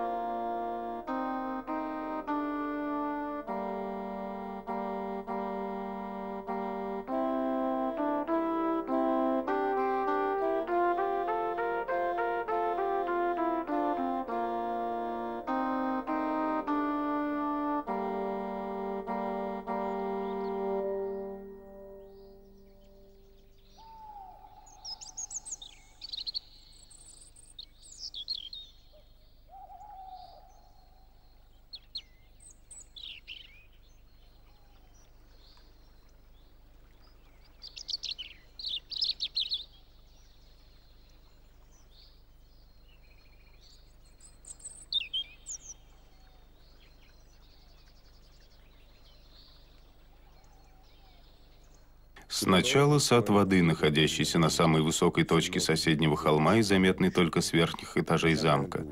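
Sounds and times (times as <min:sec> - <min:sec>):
low drawn-out bird call: 0:00.0 - 0:27.3, 0:28.2 - 0:36.2, 0:44.2 - 0:58.9
birds chirping and trilling: 0:18.5 - 0:58.9.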